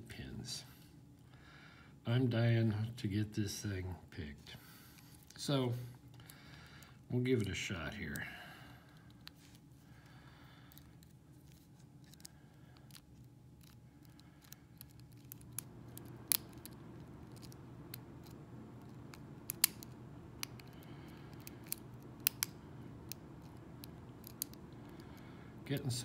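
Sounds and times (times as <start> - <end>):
lock pick metallic clicks: 13.6 - 25.2.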